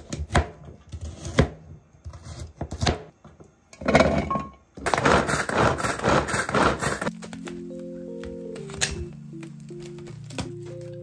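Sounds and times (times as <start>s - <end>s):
knife chopping on plastic board: 0.0s - 3.1s
hand food chopper whirring: 4.8s - 7.1s.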